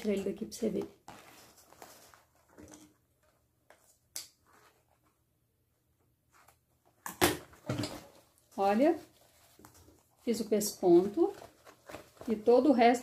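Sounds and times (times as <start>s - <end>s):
fabric bag rustling: 0.7s - 2.6s, 8.0s - 13.0s.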